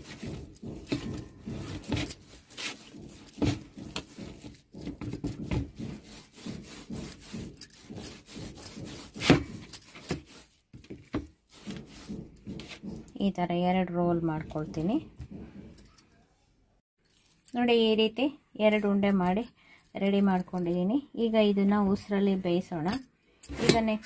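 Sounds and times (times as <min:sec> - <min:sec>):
hands kneading dough: 0:00.0 - 0:15.8.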